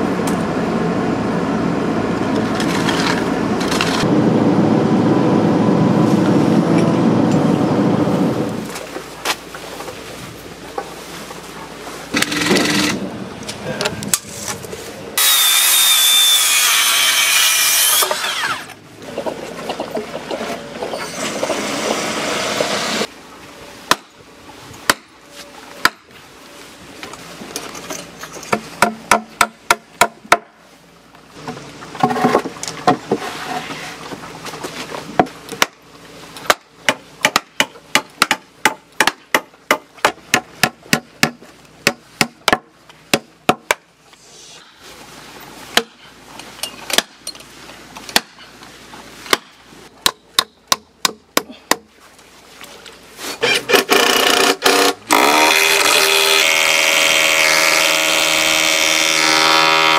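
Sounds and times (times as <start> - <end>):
loud steady drone: 0.0 - 8.8.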